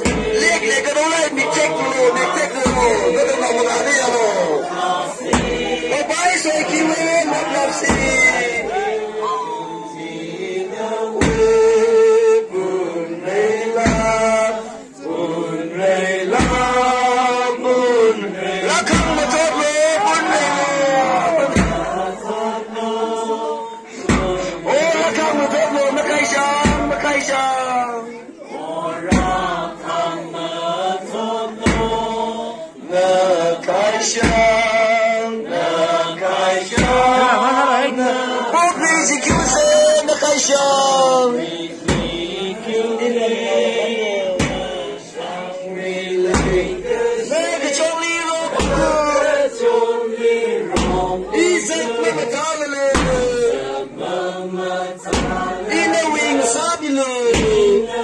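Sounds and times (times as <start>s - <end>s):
deep thump: 0.0s - 0.4s, 2.5s - 3.2s, 5.2s - 5.9s, 7.8s - 8.6s, 11.2s - 11.8s, 13.7s - 14.5s, 16.3s - 16.8s, 18.8s - 19.4s, 21.5s - 22.1s, 24.0s - 24.6s, 26.6s - 27.0s, 29.0s - 29.6s, 31.6s - 32.2s, 34.2s - 34.7s, 36.7s - 37.2s, 39.2s - 39.8s, 41.8s - 42.4s, 44.4s - 44.9s, 46.3s - 47.0s, 48.5s - 49.3s, 50.7s - 51.3s, 52.9s - 53.6s, 55.0s - 55.6s, 57.3s - 57.8s
deep drum beat: 0.0s - 0.7s, 2.2s - 3.6s, 5.2s - 6.1s, 7.7s - 8.8s, 11.2s - 11.9s, 13.7s - 14.6s, 16.3s - 17.0s, 18.8s - 19.6s, 21.4s - 22.2s, 24.0s - 24.8s, 26.5s - 27.3s, 29.0s - 29.8s, 31.6s - 32.2s, 34.2s - 34.8s, 36.6s - 37.3s, 39.2s - 40.0s, 41.8s - 42.4s, 44.3s - 44.9s, 46.3s - 47.2s, 48.5s - 49.4s, 50.7s - 51.5s, 52.9s - 53.7s, 55.0s - 55.9s, 57.2s - 57.9s
group chanting in unison: 0.0s - 58.0s.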